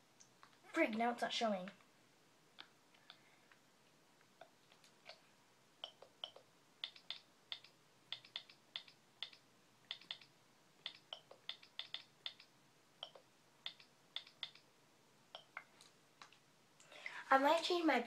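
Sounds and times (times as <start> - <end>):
faint typing on keyboard: 5.8 - 14.7.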